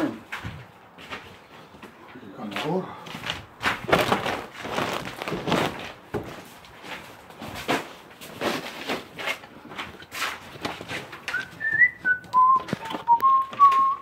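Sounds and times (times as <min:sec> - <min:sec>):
objects knocked about: 0:03.6 - 0:06.4.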